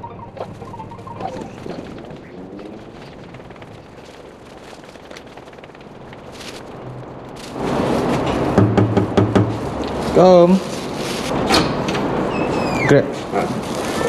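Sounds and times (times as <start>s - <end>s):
dense crackling noise: 0.0s - 12.2s
low hum: 0.0s - 12.3s.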